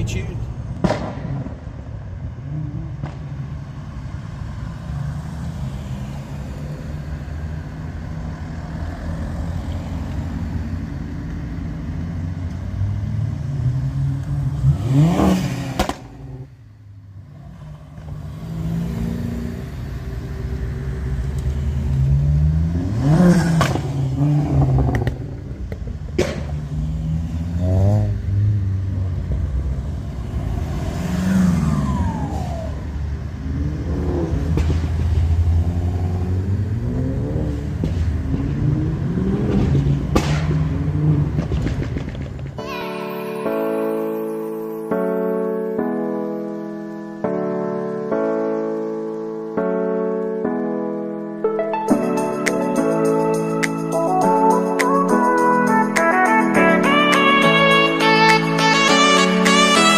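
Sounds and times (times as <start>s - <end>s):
car engines running: 0.0s - 42.6s
cars revving accelerating away: 0.8s - 16.6s, 17.2s - 42.5s.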